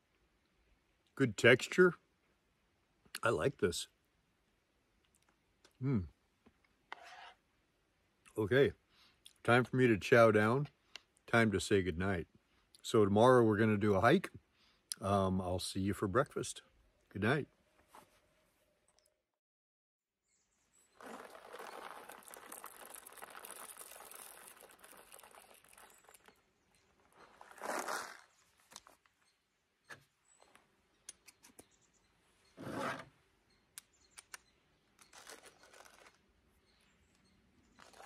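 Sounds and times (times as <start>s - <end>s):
plastic pouch rustling: 21.0s - 26.3s, 27.2s - 29.0s, 35.0s - 36.2s, 37.8s - 38.0s.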